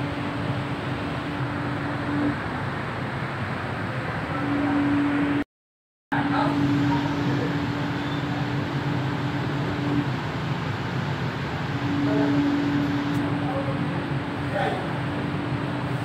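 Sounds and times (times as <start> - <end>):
train rolling rumble: 0.0 - 5.4, 6.1 - 16.0
steady hum: 0.0 - 5.5, 6.1 - 16.0.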